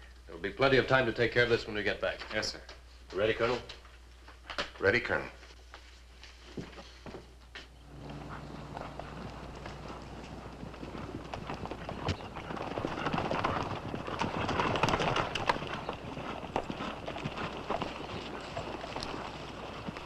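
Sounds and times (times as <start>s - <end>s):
horse hooves clattering: 6.6s - 20.0s.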